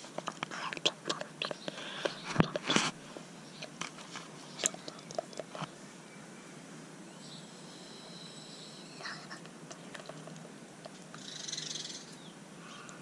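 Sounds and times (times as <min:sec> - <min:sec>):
crackling hiss: 0:00.0 - 0:13.0.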